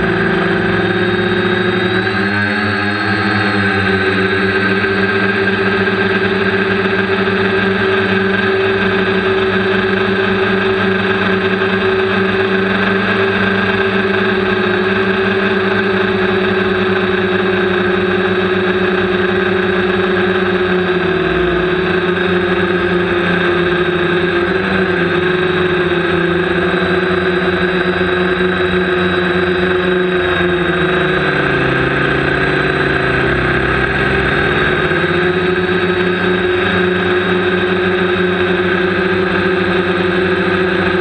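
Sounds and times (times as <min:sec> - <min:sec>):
quadcopter motors humming: 0:00.0 - 0:41.0.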